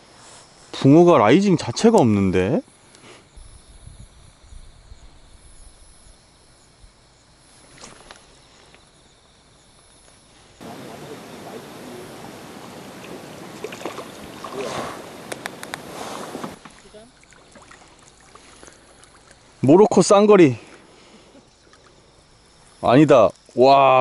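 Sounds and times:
faint steady hiss: 0.0 - 24.0
soft clicks: 15.2 - 15.9.

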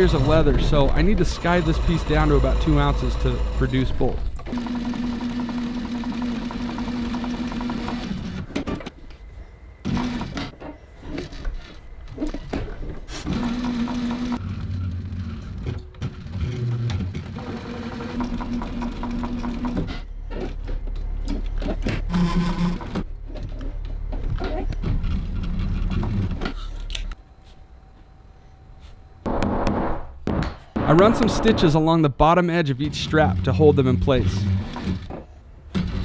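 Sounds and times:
sewing machine motor hum: 0.0 - 8.5, 9.8 - 10.5, 13.1 - 20.6, 21.3 - 23.1, 34.2 - 35.1.

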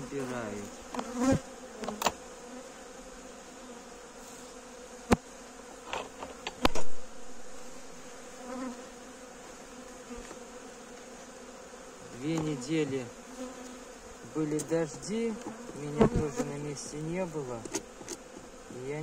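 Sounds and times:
honey bees humming: 0.0 - 19.0
wooden knocks of hive frame: 0.1 - 2.3, 5.0 - 7.0, 12.2 - 12.7, 14.4 - 16.7.

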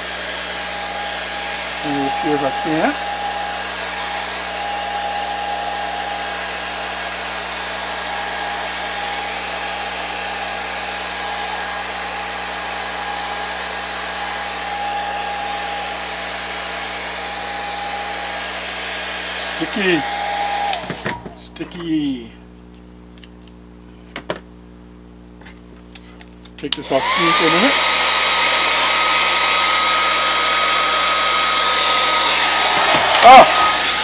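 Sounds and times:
hair dryer blowing air: 0.0 - 21.4, 26.7 - 34.0
motor whine: 0.0 - 21.4, 27.0 - 34.0.

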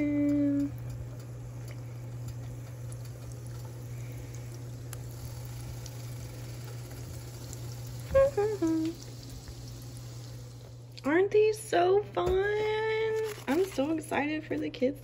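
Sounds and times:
donuts frying in bubbling oil: 0.0 - 11.0
low hum: 0.0 - 13.5.

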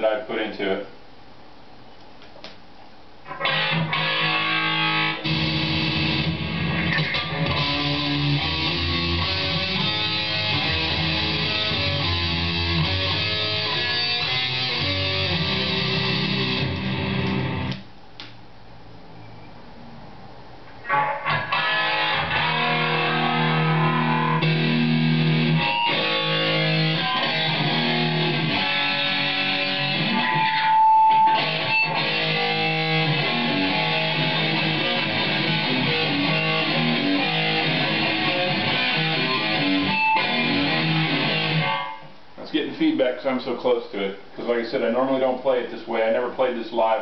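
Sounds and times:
electric guitar playing: 3.2 - 17.8, 20.8 - 42.1
high-pitched guitar feedback tone: 3.3 - 17.7, 20.8 - 42.1.

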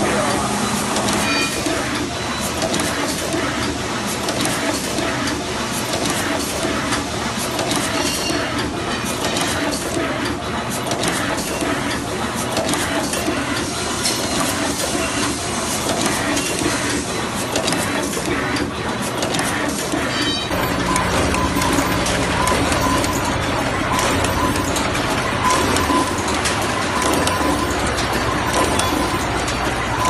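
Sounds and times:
crimping machine clattering: 0.0 - 30.0
mechanical whir: 0.0 - 30.0.

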